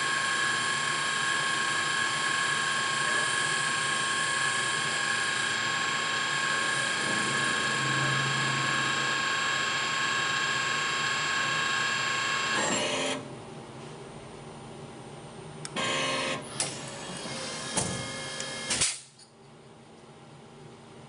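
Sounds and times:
machine high whine: 0.0 - 13.4, 15.7 - 18.8.

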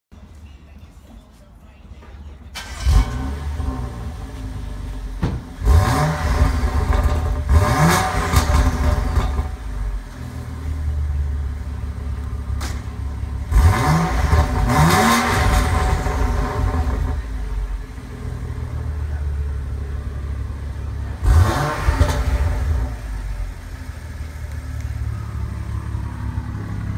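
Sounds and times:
car engine idling and revving: 2.5 - 26.9.

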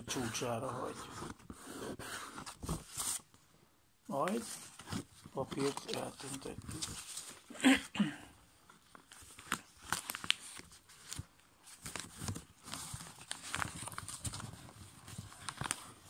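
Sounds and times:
paper crinkling and rustling: 4.1 - 7.5, 8.6 - 16.0
crisp clicks of paper creasing: 4.2 - 7.4, 8.6 - 16.0.

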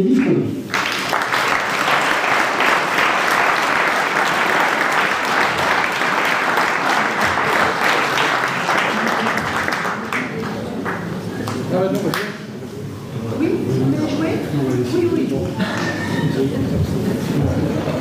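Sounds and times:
audience applauding: 0.7 - 12.3.

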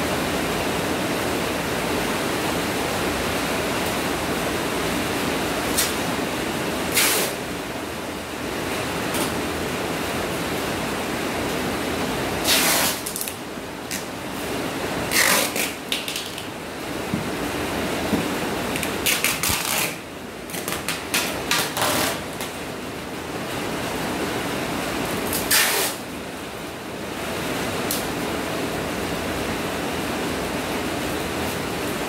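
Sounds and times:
steady hiss: 0.0 - 26.1
packing tape screeching off roll: 6.9 - 7.4, 12.4 - 14.0, 15.1 - 16.5, 18.8 - 22.5, 25.3 - 26.0.

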